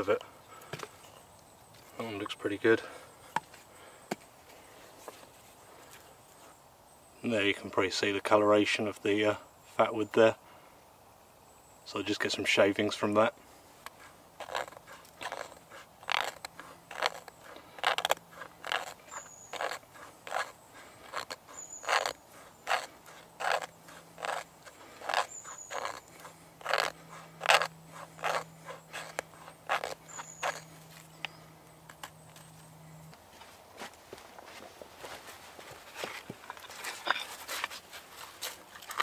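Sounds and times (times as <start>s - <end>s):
knife scraping wood: 13.8s - 32.6s, 35.9s - 39.0s.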